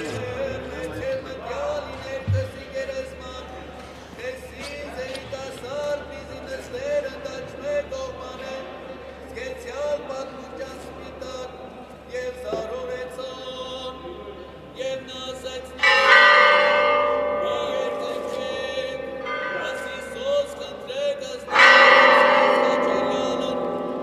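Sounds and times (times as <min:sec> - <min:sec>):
faint chanting voices: 0:00.0 - 0:24.0
church bell ringing: 0:15.8 - 0:24.0.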